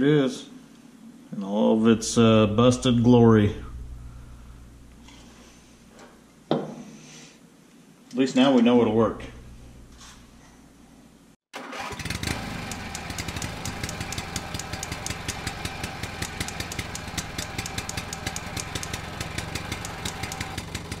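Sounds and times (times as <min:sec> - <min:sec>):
engine idling with clatter: 0:11.8 - 0:21.0.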